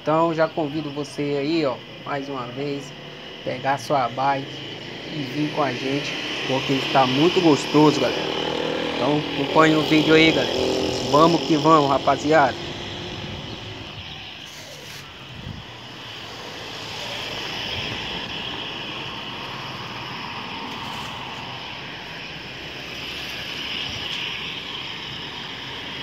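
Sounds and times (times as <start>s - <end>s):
traffic hum: 0.0s - 26.0s
small motorcycles passing: 0.7s - 26.0s.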